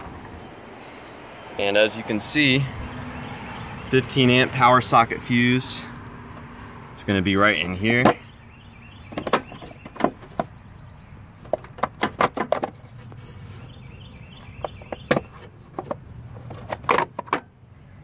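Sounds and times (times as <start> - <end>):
plastic clicks and knocks: 11.4 - 12.8, 14.6 - 17.5.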